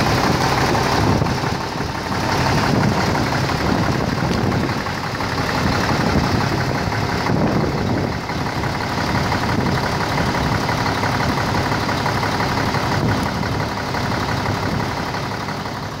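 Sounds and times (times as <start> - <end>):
diesel truck engine idling: 0.0 - 16.0.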